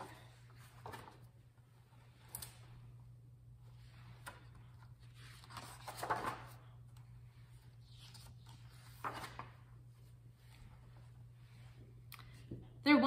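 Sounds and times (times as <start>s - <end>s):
book pages turning: 0.0s - 1.4s, 3.8s - 10.8s.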